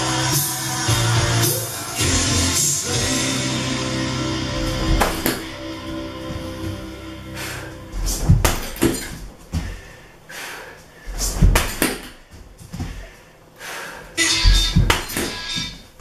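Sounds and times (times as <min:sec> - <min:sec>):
dull thuds on heavy bag: 0:08.0 - 0:09.8.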